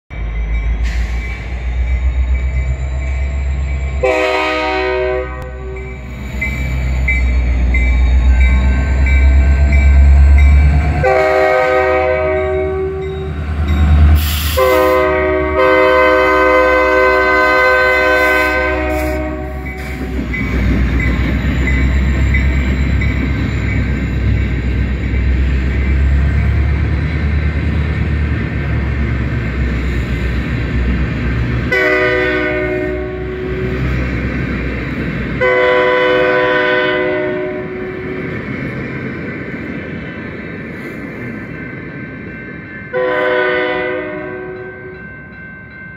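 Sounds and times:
train rolling past rumble: 0.1 - 45.9
locomotive horn blasts: 4.0 - 6.0, 11.0 - 13.3, 14.5 - 20.1, 31.7 - 33.8, 35.4 - 38.1, 42.9 - 44.9.

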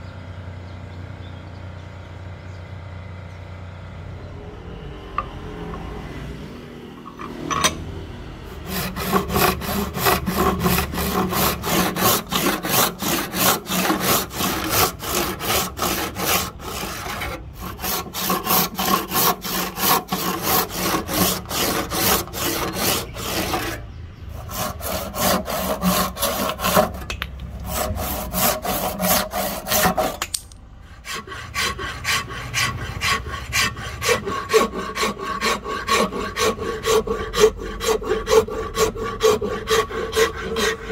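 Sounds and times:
file rasping on wood: 8.5 - 40.9
hand saw cutting wood: 8.5 - 40.9.

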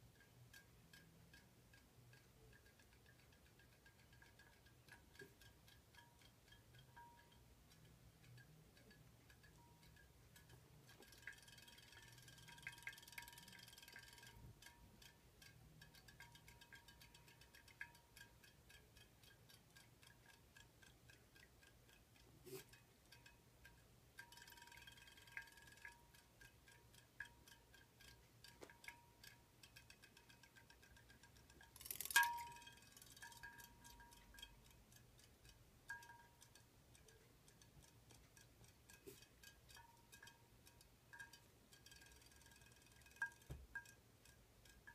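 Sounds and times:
rapid mechanical ticking: 0.0 - 44.9
ringing clinks against a bowl: 30.5 - 34.6.

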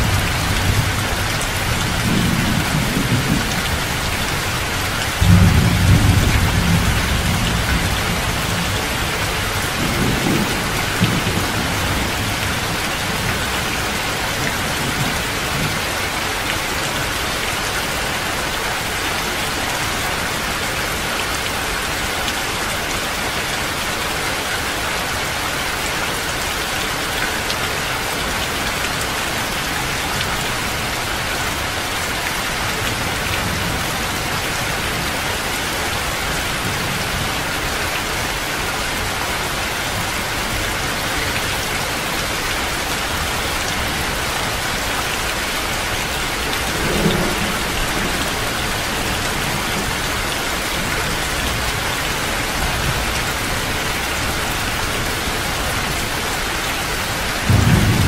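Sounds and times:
thunder rumbling: 0.0 - 14.0, 45.8 - 51.8, 57.4 - 58.0
heavy rain: 0.0 - 58.0.

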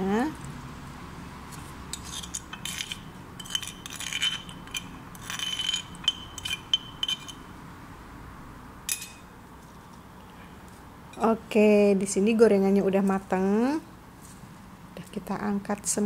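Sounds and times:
metal spoon scraping a mortar: 1.9 - 7.5
light ringing clinks: 8.9 - 9.3.

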